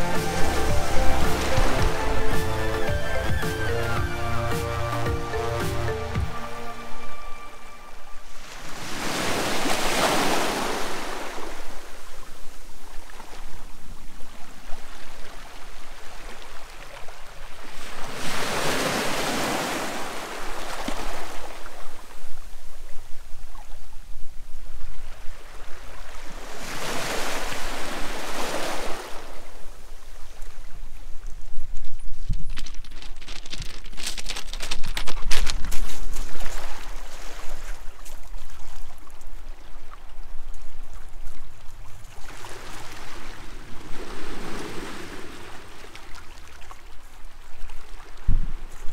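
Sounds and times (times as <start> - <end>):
sea waves breaking on shore: 0.0 - 31.5, 35.7 - 48.9.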